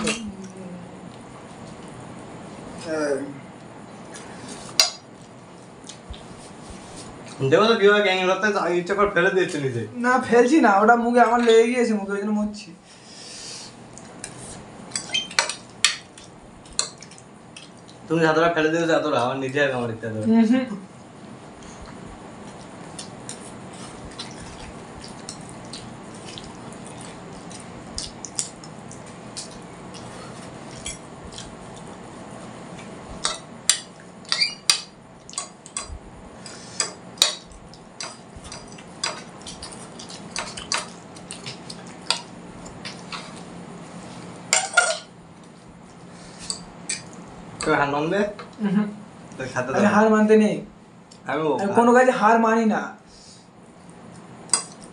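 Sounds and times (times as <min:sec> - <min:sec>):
steady low hum: 0:00.0 - 0:54.9
cutlery clinking on plates: 0:14.9 - 0:17.2, 0:44.5 - 0:45.1.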